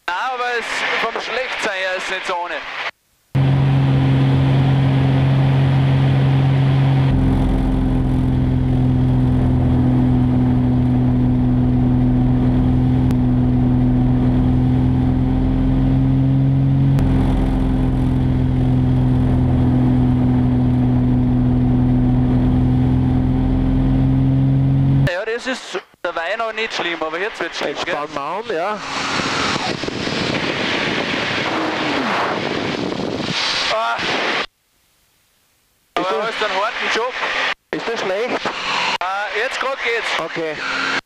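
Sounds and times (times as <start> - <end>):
propeller plane engine droning: 3.4 - 25.1, 28.7 - 34.4.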